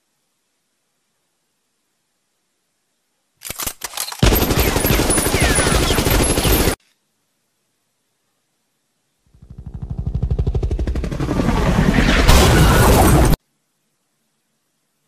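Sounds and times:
machine-gun fire: 4.2s - 6.8s.

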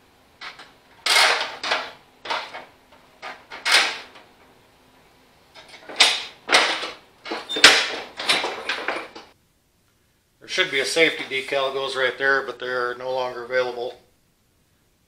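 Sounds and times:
metal levers scraping and clunking: 0.4s - 4.5s, 5.6s - 9.3s.

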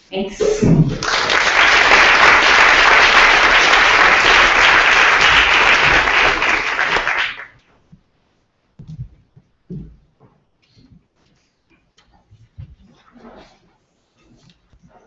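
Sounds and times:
audience applauding: 0.9s - 7.6s
faint knocks: 8.8s - 10.5s.

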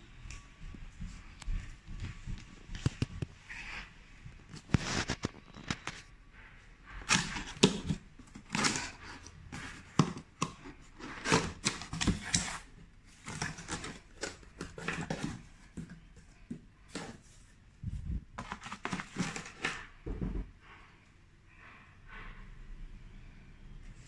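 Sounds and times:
cardboard scraping and rustling: 7.0s - 16.1s, 18.2s - 19.9s.

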